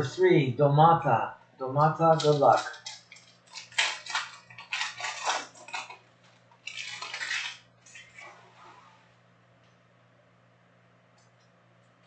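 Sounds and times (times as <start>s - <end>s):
faint low hum: 0.0s - 12.0s
wrapper crinkling and tearing: 2.1s - 8.3s.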